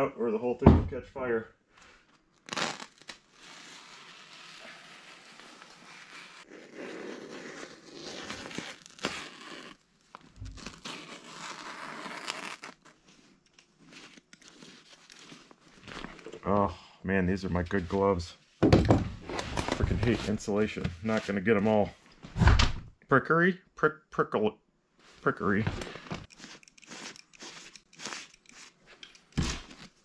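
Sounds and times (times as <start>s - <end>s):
knife cutting crinkling paper: 2.5s - 13.0s, 26.2s - 30.0s.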